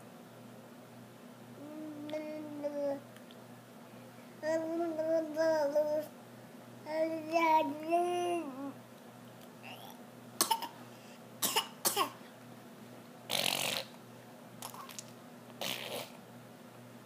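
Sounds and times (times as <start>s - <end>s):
toddler coughing and mouth noises: 9.8s - 10.8s, 11.4s - 12.2s.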